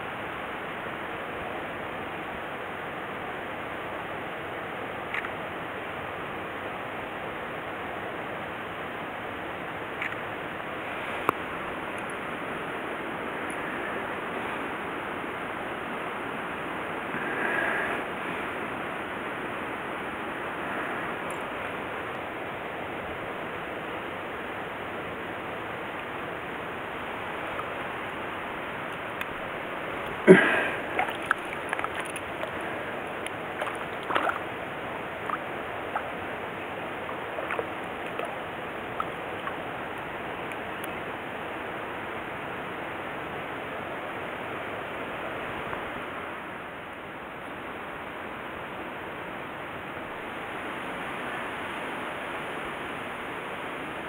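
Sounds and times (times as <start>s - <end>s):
stream water flowing: 0.0s - 54.0s
small clicks and splashes: 5.1s - 5.4s, 10.0s - 10.2s, 30.9s - 34.5s, 35.2s - 41.0s.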